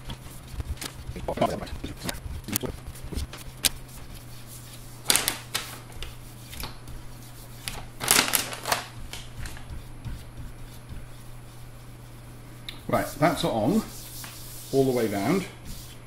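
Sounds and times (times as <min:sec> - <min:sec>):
paper backing crackling: 0:00.0 - 0:04.4, 0:05.0 - 0:11.2
steady low hum: 0:00.0 - 0:16.0.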